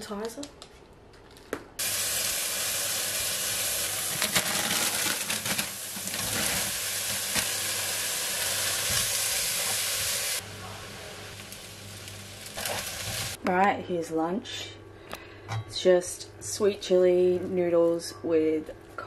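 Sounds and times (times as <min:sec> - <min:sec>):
chicken sizzling in frying pan: 0:01.8 - 0:13.4.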